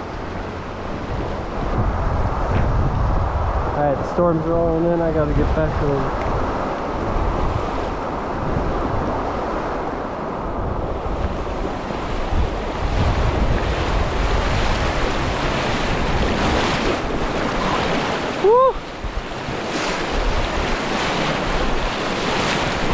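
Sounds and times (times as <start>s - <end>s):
creek rushing: 0.0s - 22.9s
wind buffeting microphone: 0.0s - 22.9s.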